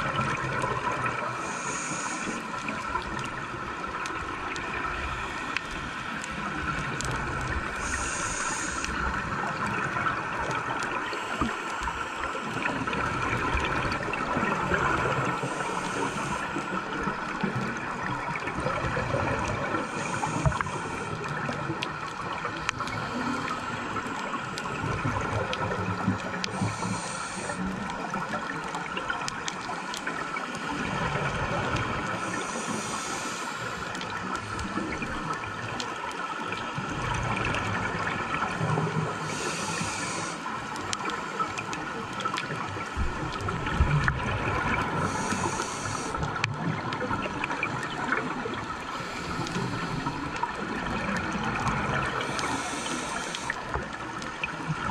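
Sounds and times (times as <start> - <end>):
bubbling exhaled air: 0.0 - 35.8, 36.7 - 54.9
steady underwater hum: 0.0 - 54.9
regulator hiss: 1.3 - 2.6, 7.6 - 9.2, 15.2 - 17.2, 26.5 - 27.8, 32.2 - 33.8, 39.2 - 41.5, 45.0 - 46.2, 52.1 - 53.9.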